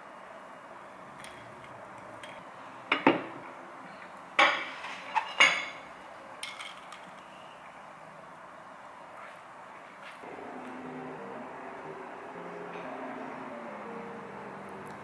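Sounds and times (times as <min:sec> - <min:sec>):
glassware and plate clinking: 0:01.2 - 0:03.4, 0:04.4 - 0:07.4.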